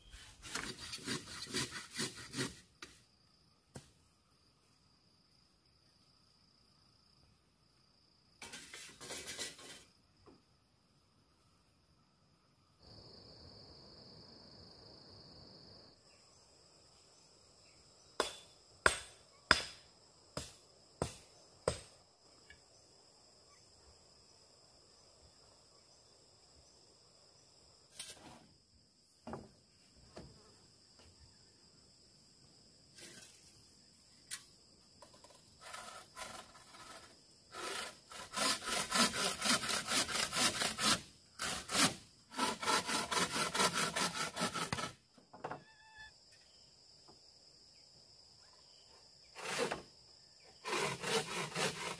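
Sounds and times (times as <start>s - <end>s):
insects buzzing: 0.0s - 51.9s
handsaw cutting bamboo: 0.3s - 2.7s, 35.6s - 45.0s, 49.4s - 49.8s, 50.6s - 51.9s.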